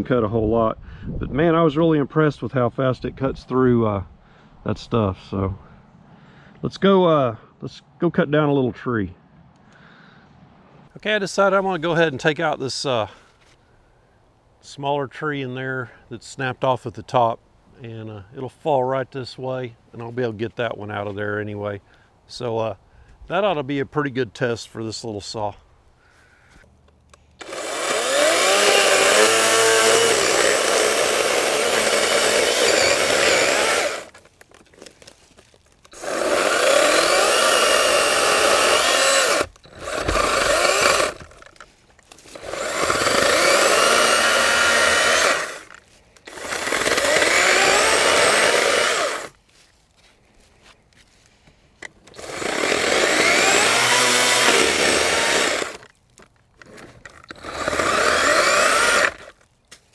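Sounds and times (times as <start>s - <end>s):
battery chainsaw cutting wood: 27.4s - 34.3s, 35.9s - 49.4s, 52.0s - 56.0s, 56.6s - 59.5s.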